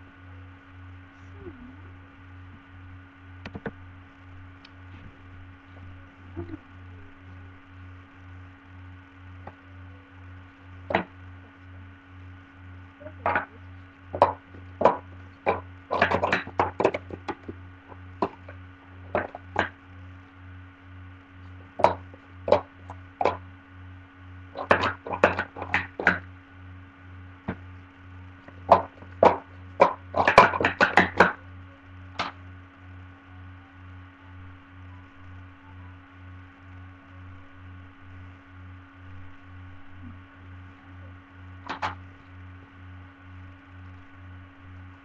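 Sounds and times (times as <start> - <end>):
electrical hum: 0.0 - 45.0
plastic cups clattering: 14.2 - 17.5, 28.6 - 31.4.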